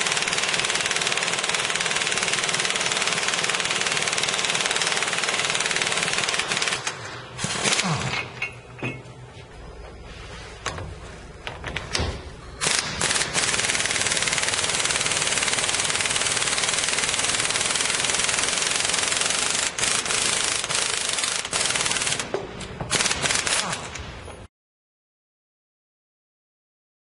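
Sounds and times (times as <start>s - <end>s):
air impact wrench hammering: 12.6s - 23.6s.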